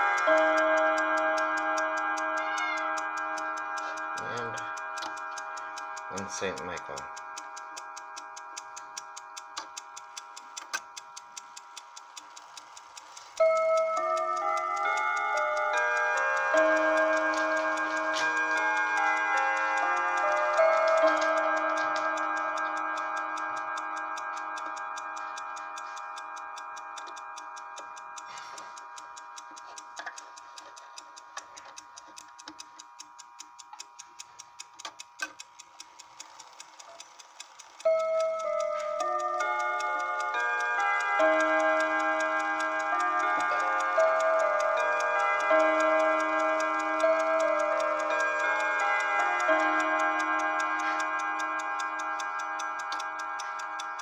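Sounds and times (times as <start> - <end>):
chime rods ringing faintly: 0.0 - 9.2
clock ticking quickly: 0.0 - 54.0.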